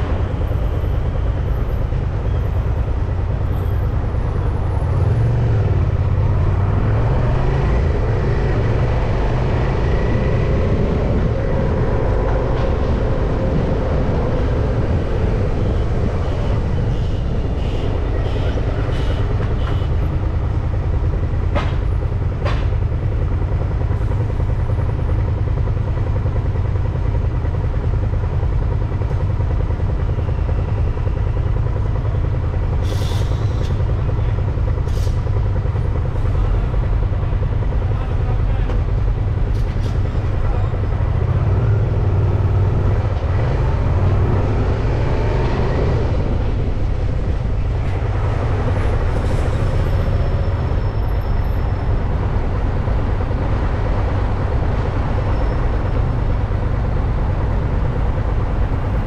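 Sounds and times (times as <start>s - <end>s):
bicycle road noise: 0.0s - 59.0s
traffic: 0.0s - 59.0s
wind rumbling on microphone: 5.9s - 20.3s.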